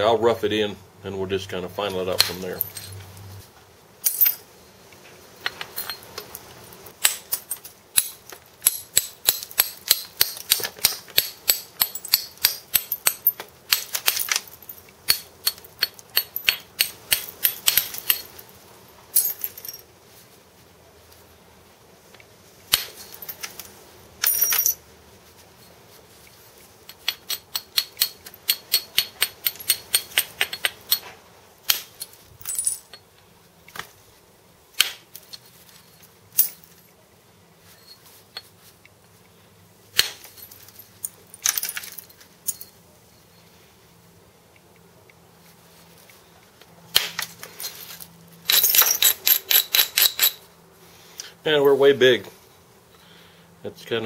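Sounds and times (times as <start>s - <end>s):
stone tool striking flint: 7.0s - 14.4s.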